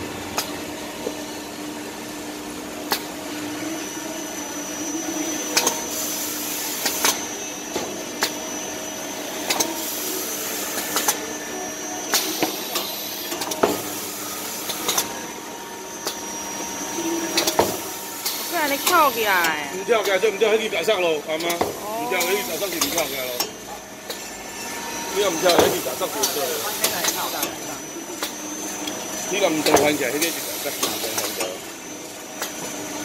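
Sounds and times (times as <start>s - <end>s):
high machine whine: 0.0s - 33.0s
machine humming: 14.0s - 30.7s.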